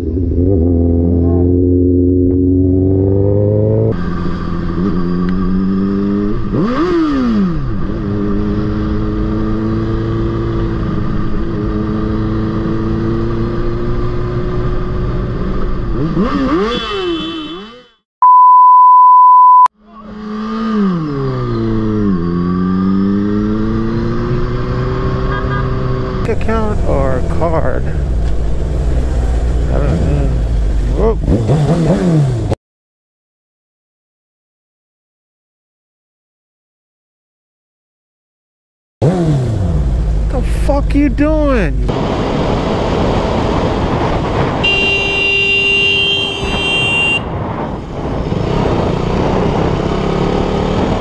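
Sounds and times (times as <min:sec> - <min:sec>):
motorcycle engine revving: 0:00.0 - 0:18.0, 0:19.9 - 0:32.6, 0:39.0 - 0:51.0
high-pitched censor bleep: 0:18.2 - 0:19.7.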